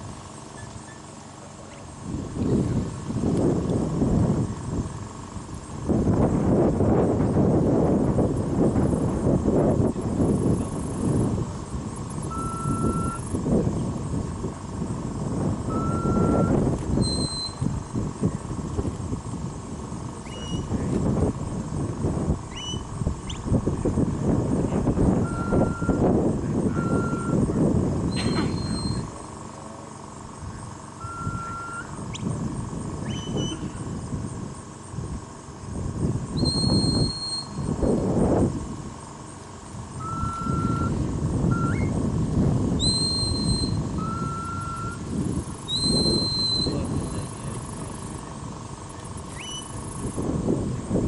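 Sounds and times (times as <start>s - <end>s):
loud low uneven rumble: 0.0s - 51.0s
stock whistle notes: 12.3s - 13.3s, 15.7s - 17.7s, 25.2s - 26.0s, 26.7s - 27.4s, 28.1s - 29.1s, 31.0s - 32.0s, 33.1s - 33.7s, 36.4s - 37.7s, 40.0s - 41.9s, 42.8s - 45.0s, 45.7s - 46.9s.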